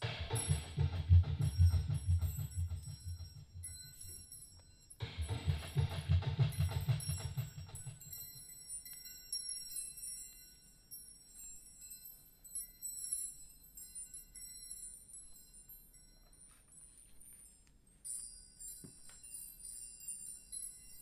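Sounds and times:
deep drum beat: 0.0 - 3.8, 5.0 - 8.1
chimes ringing: 0.0 - 21.0.

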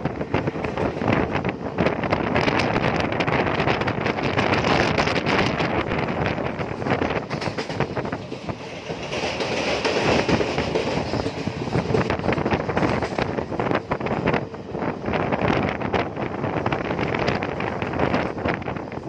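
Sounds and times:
wheels clicking on rails: 0.0 - 14.4
train wheels rumbling on rails: 0.0 - 19.0
wind noise on microphone: 0.0 - 19.0.

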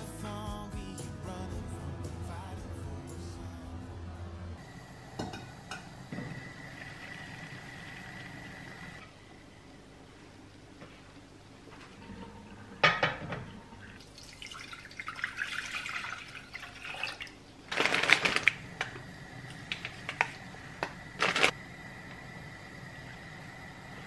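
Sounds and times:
plastic packet crinkling: 17.7 - 18.7, 21.2 - 21.5.

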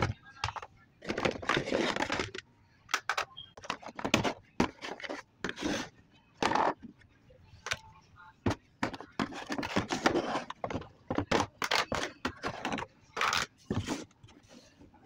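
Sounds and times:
cosmetic cases clicking and knocking: 0.0 - 5.2, 8.5 - 14.0.

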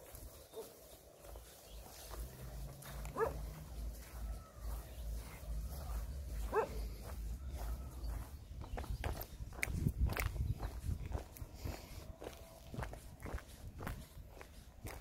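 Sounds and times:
dog barking: 0.5 - 0.8, 3.0 - 3.6, 6.4 - 6.9.

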